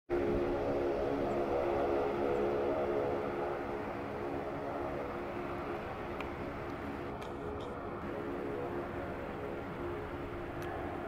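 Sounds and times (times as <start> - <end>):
propeller airliner drone: 0.1 - 11.0.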